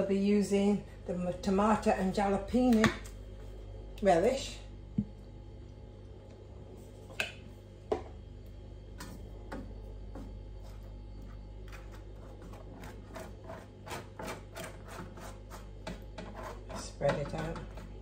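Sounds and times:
steady low hum: 0:00.0 - 0:18.0
spatula scraping on bread: 0:10.0 - 0:18.0.

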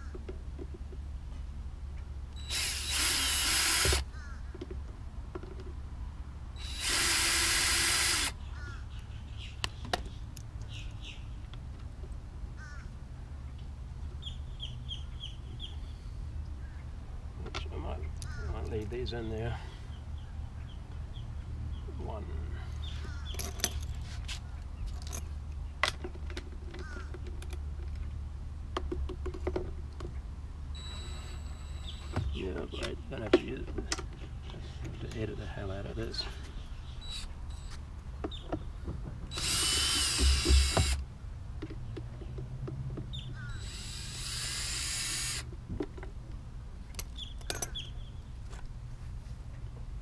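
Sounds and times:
cordless drill spinning bolt: 0:02.4 - 0:04.0, 0:06.6 - 0:08.3, 0:30.8 - 0:32.4, 0:37.0 - 0:37.8, 0:39.3 - 0:41.0, 0:43.4 - 0:45.5
metallic clinks of spanner and bolts: 0:23.3 - 0:24.0, 0:47.4 - 0:47.8.

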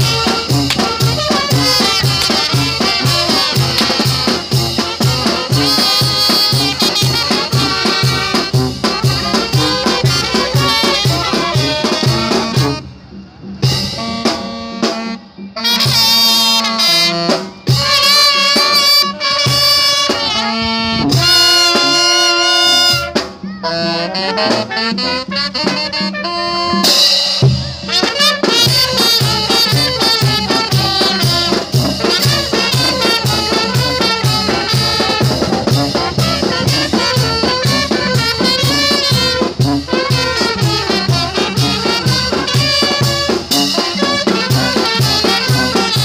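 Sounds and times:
bass drum and cymbal beat: 0:00.0 - 0:12.8, 0:26.6 - 0:46.0
saxophones and trumpets: 0:00.0 - 0:46.0.

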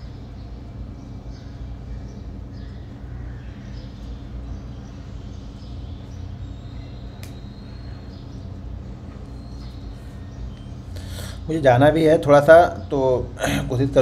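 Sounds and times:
low background hum: 0:00.0 - 0:14.0
sharp click: 0:07.2 - 0:07.4.

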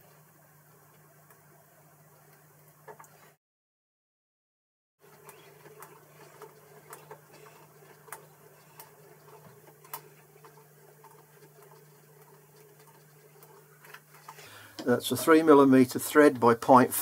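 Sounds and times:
lathe humming: 0:05.0 - 0:16.1.

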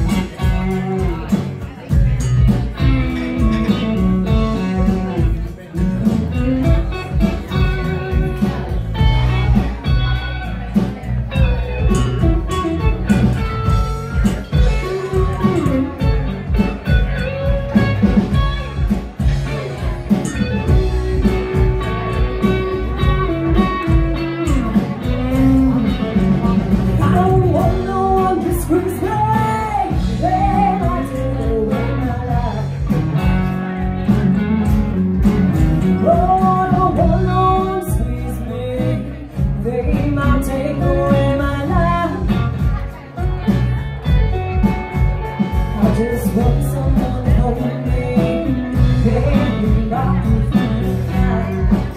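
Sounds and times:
live band with guitars: 0:00.0 - 0:51.9
woman singing: 0:27.0 - 0:32.9, 0:36.0 - 0:42.8, 0:45.7 - 0:51.9.

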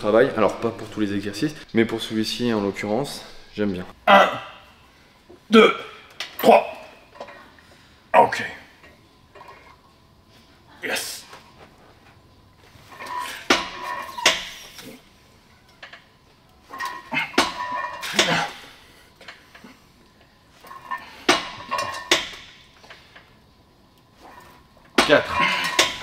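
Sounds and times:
metal gym weights clanking: 0:12.8 - 0:14.6, 0:16.7 - 0:18.6, 0:20.6 - 0:23.1, 0:24.2 - 0:26.0.

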